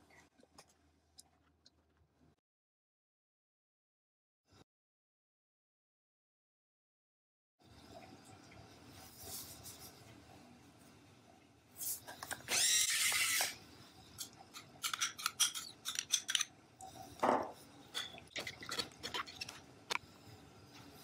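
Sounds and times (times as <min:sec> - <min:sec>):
spoon scraping glass bowl: 0:14.2 - 0:16.5, 0:18.0 - 0:19.6
wet squelching of hand mixing: 0:18.2 - 0:19.7.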